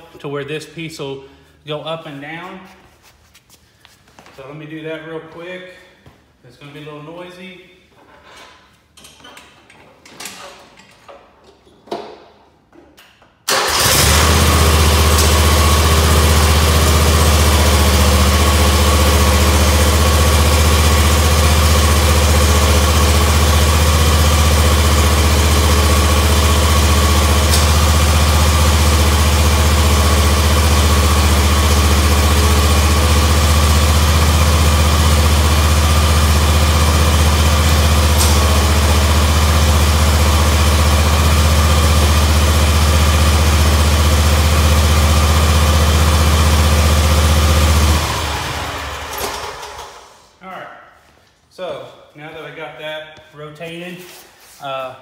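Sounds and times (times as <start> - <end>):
mower engine running: 13.5 - 49.9.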